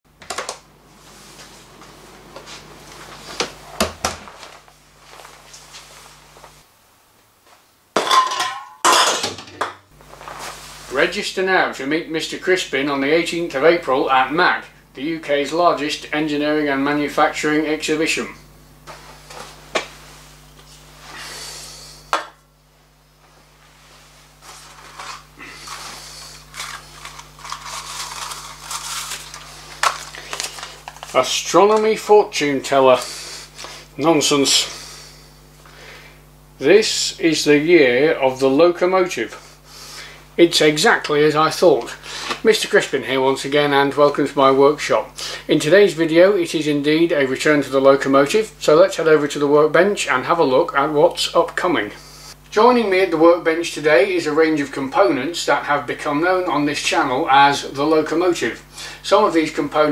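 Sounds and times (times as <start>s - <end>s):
electrical hum: 0.1s - 59.9s
rustling and shuffling: 0.8s - 6.7s, 9.9s - 11.1s, 18.8s - 21.1s, 22.6s - 31.4s.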